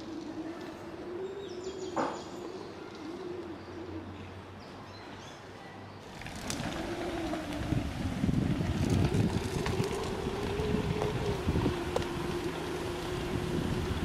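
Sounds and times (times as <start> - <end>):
dove cooing: 0.0 - 4.4, 6.2 - 14.0
steady low hum: 6.1 - 14.0
wind noise on microphone: 6.1 - 14.0.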